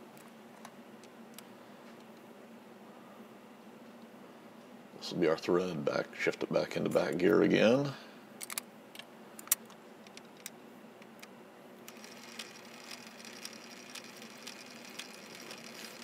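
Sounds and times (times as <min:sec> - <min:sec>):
metallic clicks: 0:08.4 - 0:11.3
gear whine: 0:11.9 - 0:16.0
lathe humming: 0:11.9 - 0:16.0.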